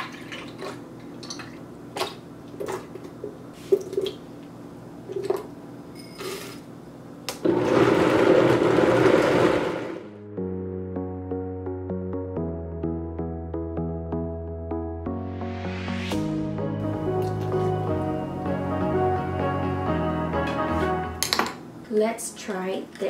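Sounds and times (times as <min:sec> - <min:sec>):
blender motor running: 0:07.4 - 0:10.1.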